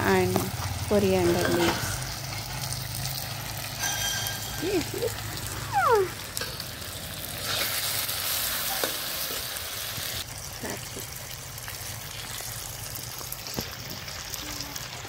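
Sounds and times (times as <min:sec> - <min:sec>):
chicken sizzling in pan: 0:00.0 - 0:15.0
spatula clinking on pan: 0:03.8 - 0:05.2.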